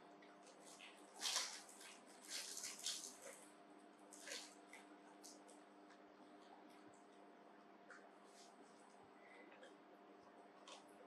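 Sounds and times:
faint rustling and smacking: 0:00.2 - 0:03.5.

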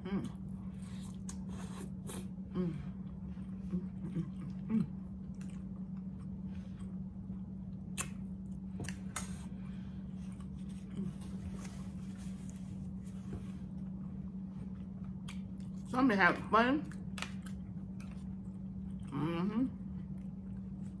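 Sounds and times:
low hum: 0:00.0 - 0:21.0
wet chewing: 0:05.2 - 0:06.9.

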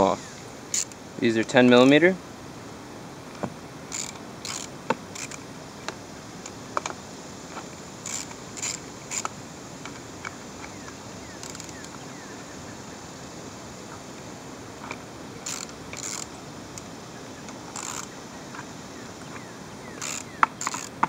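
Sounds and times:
ratchet wrench clicking: 0:00.7 - 0:01.0, 0:03.9 - 0:05.4, 0:08.0 - 0:10.0, 0:11.4 - 0:11.9, 0:14.8 - 0:16.9, 0:17.7 - 0:18.1, 0:20.0 - 0:21.0
sharp metal clicks: 0:00.7 - 0:01.0, 0:03.9 - 0:07.0, 0:08.0 - 0:12.0, 0:14.8 - 0:16.9, 0:19.3 - 0:21.0.

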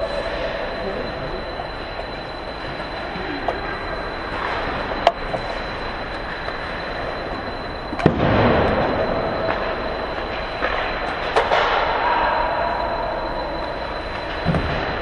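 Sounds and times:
hockey sticks and puck clacking: 0:09.4 - 0:12.1.

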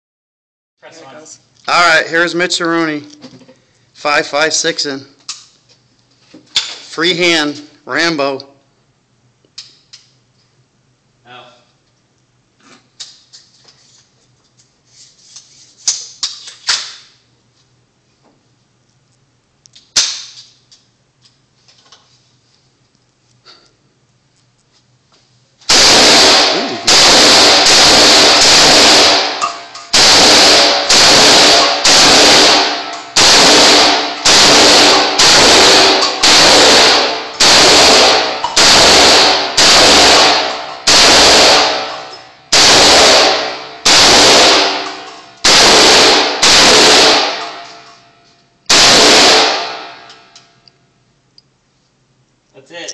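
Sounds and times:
rifle shots echoing indoors: 0:19.9 - 0:20.6, 0:25.7 - 0:50.7.

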